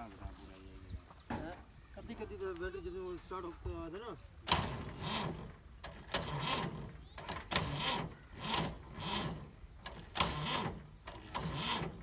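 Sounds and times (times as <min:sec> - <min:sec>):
starter motor cranking engine: 0:04.4 - 0:12.0.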